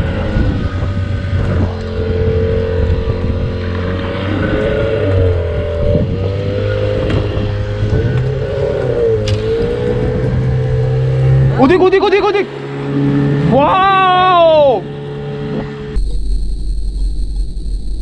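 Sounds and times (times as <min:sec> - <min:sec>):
boat engine running: 0:00.0 - 0:18.0.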